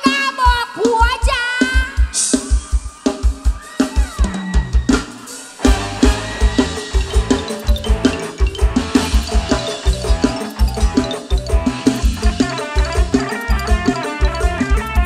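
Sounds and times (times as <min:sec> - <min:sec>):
drum kit playing fast beat: 0:00.0 - 0:15.0
wavering melodic lead line: 0:05.6 - 0:15.0.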